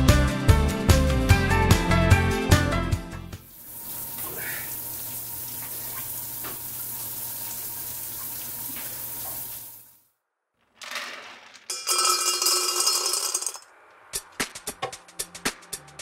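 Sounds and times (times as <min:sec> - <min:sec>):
shower spraying water: 0:03.4 - 0:10.0.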